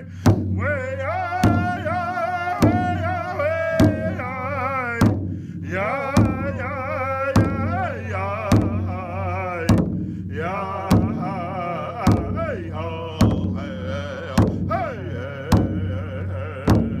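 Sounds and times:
slow steady drum beats: 0.0 - 17.0
voices singing wavering melody: 10.3 - 17.0.

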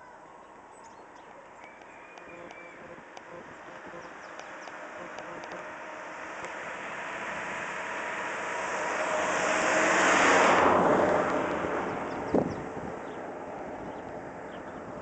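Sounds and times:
motor vehicle passing by: 1.8 - 15.0.

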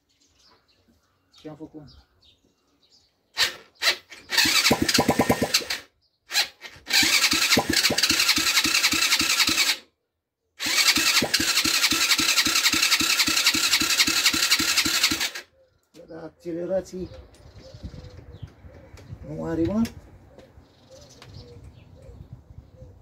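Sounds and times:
atv engine cranking on starter: 3.4 - 9.9, 10.6 - 15.5.

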